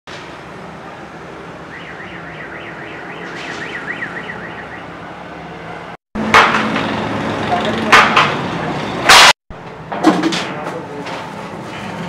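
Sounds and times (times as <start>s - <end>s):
warbling electronic alarm: 1.7s - 5.0s.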